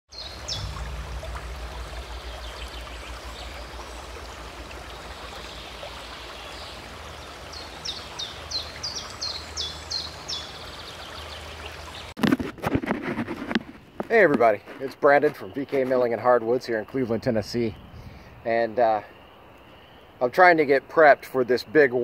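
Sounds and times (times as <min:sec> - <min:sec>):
bird chirping: 0:00.1 - 0:12.1
water flowing: 0:00.1 - 0:12.2
low rumble: 0:00.2 - 0:07.1.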